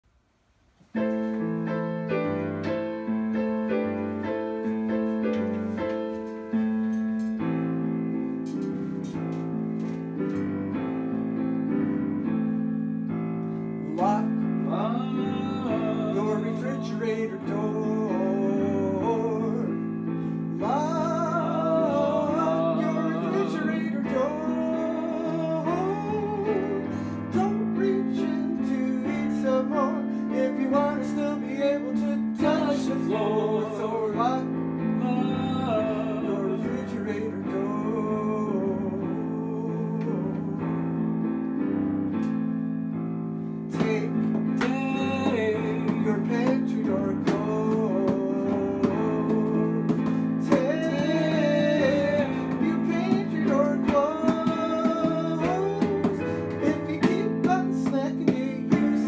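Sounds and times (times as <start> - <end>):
digital piano chords: 0.8 - 59.0
person singing: 13.8 - 41.6, 43.7 - 59.0.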